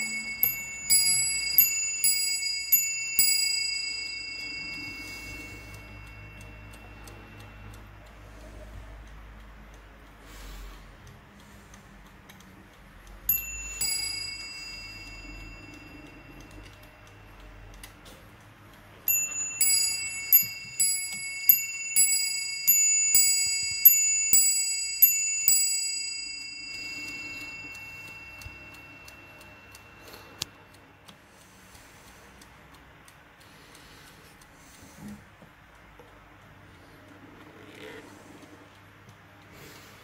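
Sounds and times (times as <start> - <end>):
clock bells striking ding-dong: 0.0 - 8.0, 13.3 - 17.3, 19.1 - 30.7
faint clock ticking: 0.0 - 40.0.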